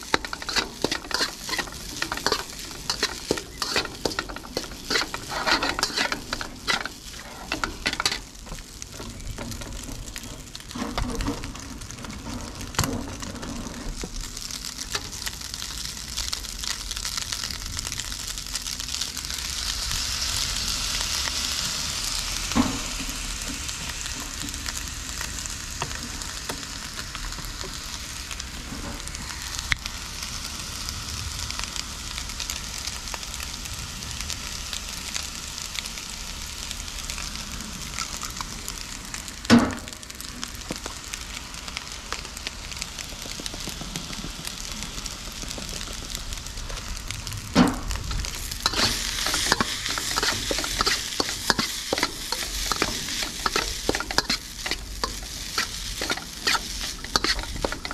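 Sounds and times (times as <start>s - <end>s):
spatula scraping and clicking: 0.0s - 11.6s, 48.1s - 57.9s
rice sizzling in a wok: 0.0s - 57.9s.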